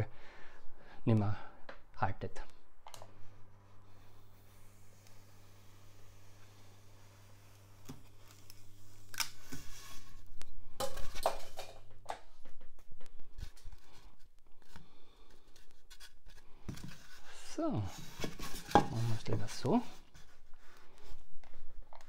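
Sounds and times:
hot-wire cutter electrical hum: 1.1 - 16.6.

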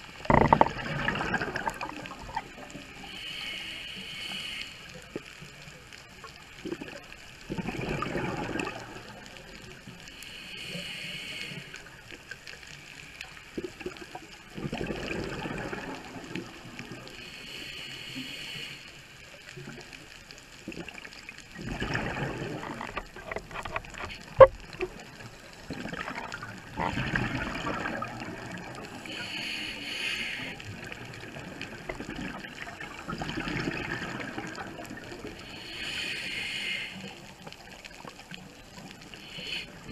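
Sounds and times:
exhaled bubbles rushing: 0.0 - 2.8, 6.7 - 9.2, 14.6 - 16.5, 21.6 - 29.0, 30.7 - 35.4
diver breathing through regulator: 3.0 - 4.9, 29.0 - 30.6, 35.4 - 37.2.

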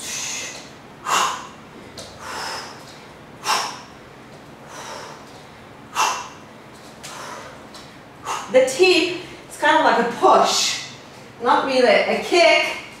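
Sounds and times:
woman exhaling forcefully: 0.0 - 1.6, 3.4 - 3.9, 5.9 - 6.4, 8.2 - 8.6
soft breathing: 0.0 - 3.9, 4.6 - 6.4, 7.0 - 8.6.

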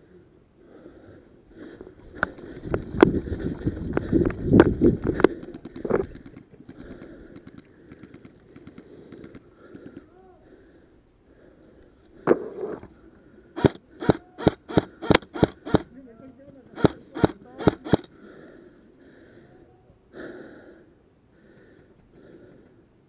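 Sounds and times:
gear clicks: 2.2 - 10.1.

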